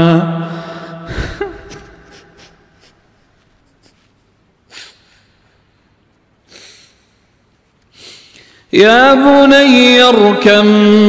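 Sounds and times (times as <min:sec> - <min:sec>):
man reciting: 0:00.0 - 0:01.1, 0:08.6 - 0:11.0
man weeping: 0:00.5 - 0:03.0
sharp breath sniff: 0:04.7 - 0:05.3, 0:06.5 - 0:07.2, 0:07.9 - 0:08.7.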